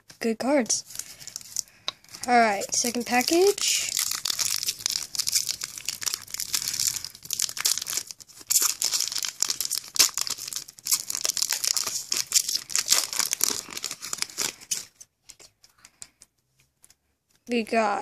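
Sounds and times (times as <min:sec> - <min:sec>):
foil wrapper tearing and crinkling: 0:00.9 - 0:15.0.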